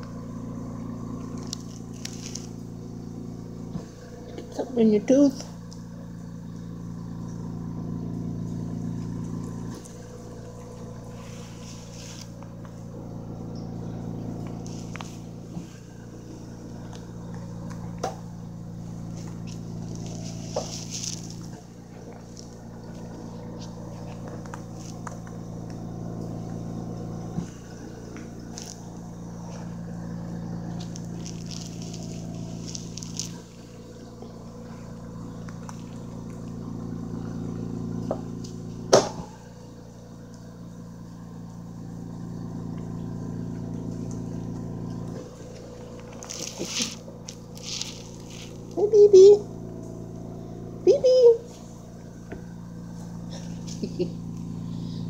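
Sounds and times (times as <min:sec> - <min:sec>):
low hum: 0:00.0 - 0:55.0
guinea pigs chewing: 0:00.8 - 0:03.0, 0:18.8 - 0:26.6, 0:27.3 - 0:33.6, 0:45.1 - 0:48.8.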